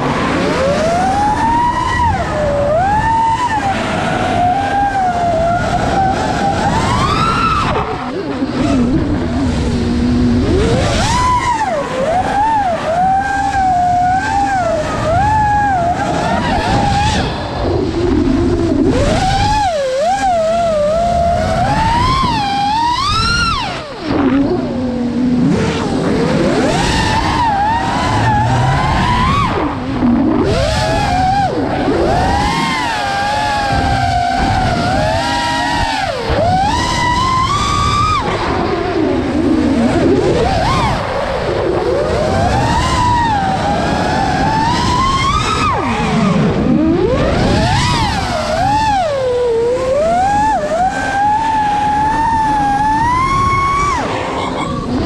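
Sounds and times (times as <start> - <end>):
drone propellers whining: 0.0 - 55.0
wind rush on microphone: 0.0 - 55.0.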